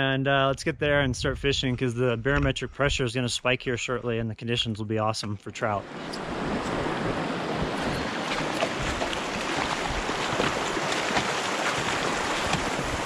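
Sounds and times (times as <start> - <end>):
stream rushing over rocks: 5.8 - 13.0.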